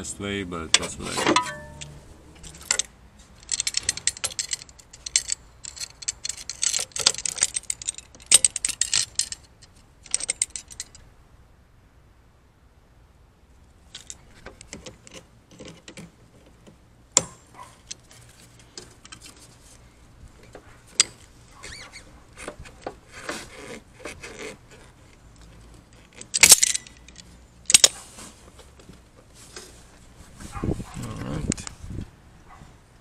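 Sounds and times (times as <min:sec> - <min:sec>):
pliers rattling against metal: 0:00.7 - 0:11.0, 0:13.9 - 0:16.0, 0:20.4 - 0:28.0
small metallic clicks: 0:01.3 - 0:11.1, 0:13.9 - 0:19.5, 0:20.4 - 0:28.0.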